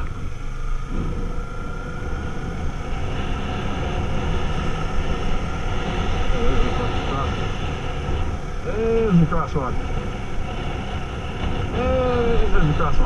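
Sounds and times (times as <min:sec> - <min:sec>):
motorcycle engine running: 0:00.0 - 0:13.0
wind and road noise: 0:00.0 - 0:13.0.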